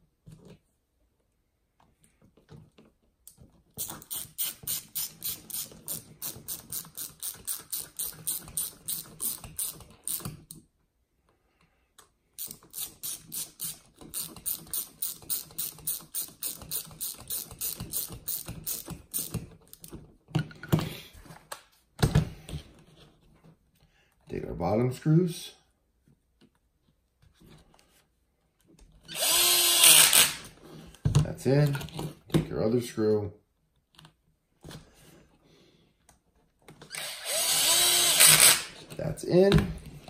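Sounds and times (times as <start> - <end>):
ratcheting hand driver clicking: 3.8 - 10.6, 12.4 - 19.9.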